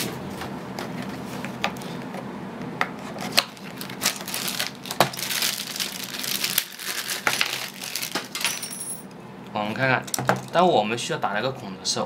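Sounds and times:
crinkling rustle: 0:03.2 - 0:08.5.

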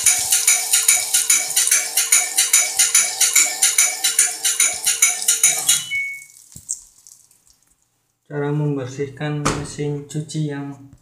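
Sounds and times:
music with quick steady beat: 0:00.0 - 0:04.1.

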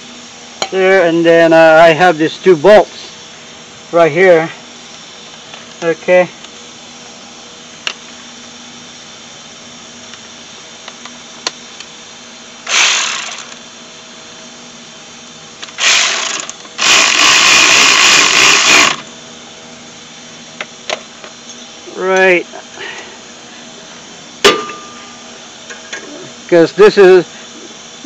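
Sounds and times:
power tool driving bolts: 0:12.6 - 0:13.6, 0:15.6 - 0:19.1.

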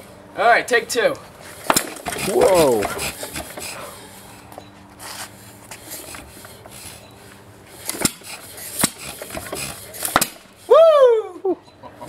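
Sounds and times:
engine turned over by hand: 0:01.4 - 0:07.0, 0:07.6 - 0:10.7.

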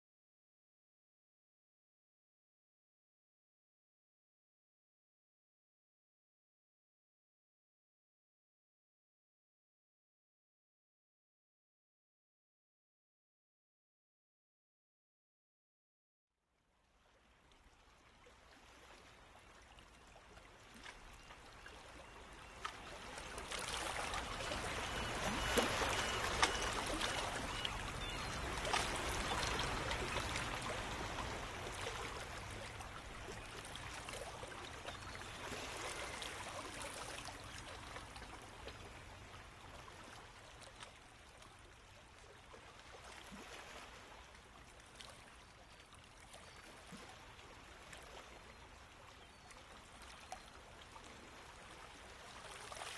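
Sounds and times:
trickling water: 0:16.9 - 0:52.9.

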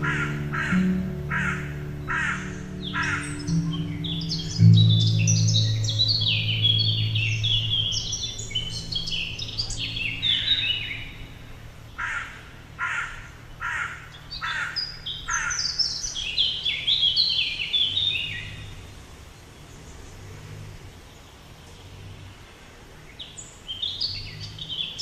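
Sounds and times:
harsh bird calls: 0:00.0 - 0:18.9
birds chirping: 0:00.0 - 0:25.0.

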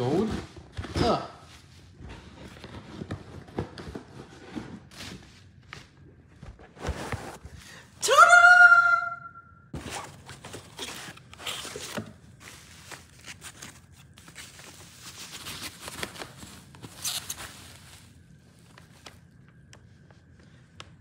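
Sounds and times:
packaging rustling and clicking: 0:09.8 - 0:19.8.

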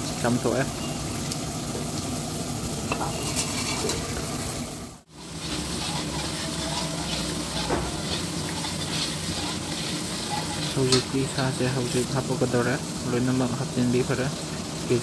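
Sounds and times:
gravy sizzling and bubbling in a wok: 0:00.0 - 0:15.0
metal ladle scraping a pan: 0:02.9 - 0:04.6, 0:05.2 - 0:12.1.

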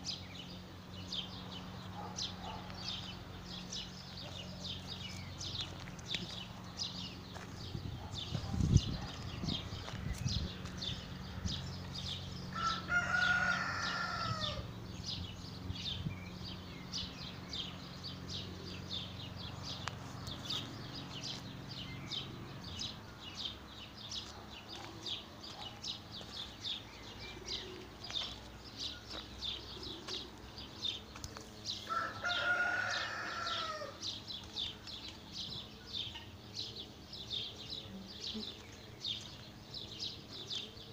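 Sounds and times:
rooster crowing: 0:12.5 - 0:14.7, 0:31.9 - 0:34.0.

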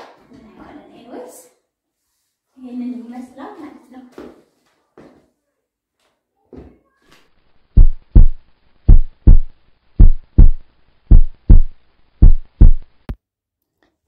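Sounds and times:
heartbeat thumps: 0:07.8 - 0:12.9.

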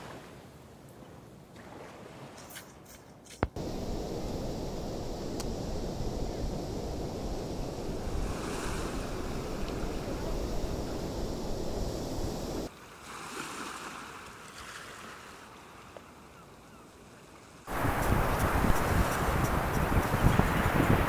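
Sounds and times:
wind rumbling on microphone: 0:03.4 - 0:12.7, 0:17.7 - 0:21.0
surf washing on sandy beach: 0:03.5 - 0:15.4, 0:17.7 - 0:21.0.

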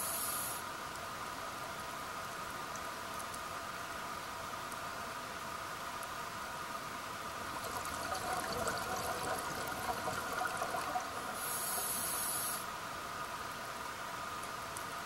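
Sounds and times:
regulator inhalation hiss: 0:00.0 - 0:00.6, 0:11.2 - 0:12.7
steady background hum: 0:00.0 - 0:15.0
bubbles gurgling underwater: 0:07.5 - 0:11.5.

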